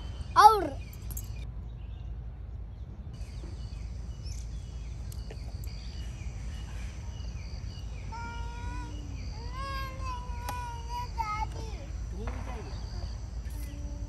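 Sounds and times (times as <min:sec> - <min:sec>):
insects chirping: 0:00.0 - 0:01.4, 0:03.2 - 0:14.0
child's voice: 0:00.4 - 0:00.8, 0:08.1 - 0:12.1.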